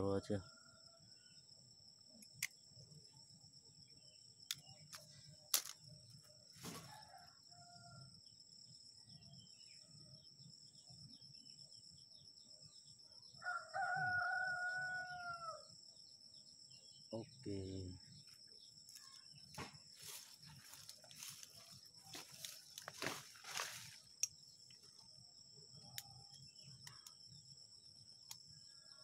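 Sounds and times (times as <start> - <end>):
high insect drone: 0.0 - 29.0
rooster crowing: 6.8 - 8.1, 13.4 - 15.7.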